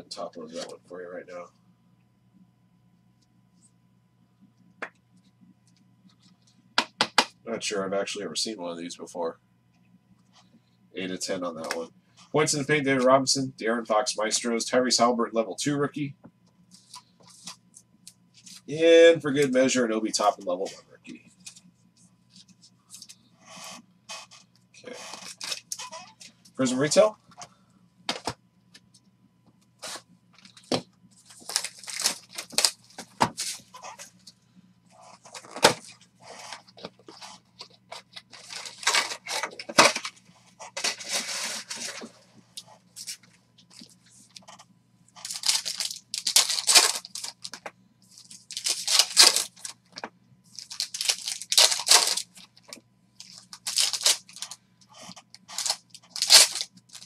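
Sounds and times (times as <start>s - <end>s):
foil wrapper crinkling and tearing: 25.1s - 26.0s, 31.2s - 34.1s, 37.9s - 40.1s, 45.2s - 47.6s, 48.2s - 49.8s, 50.5s - 54.6s, 55.3s - 57.0s.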